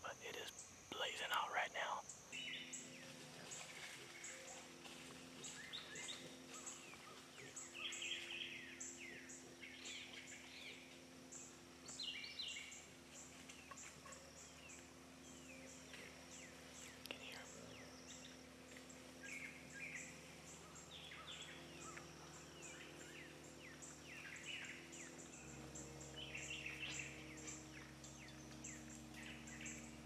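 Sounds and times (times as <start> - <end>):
birds chirping and whistling: 5.4 - 18.4, 19.2 - 30.0.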